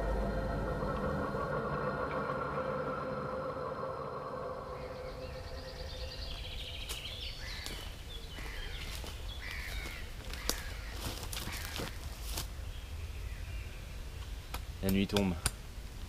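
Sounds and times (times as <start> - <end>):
low steady rumble: 0.0 - 7.3
birds chirping: 0.0 - 15.4
footsteps cracking in undergrowth: 6.2 - 12.6.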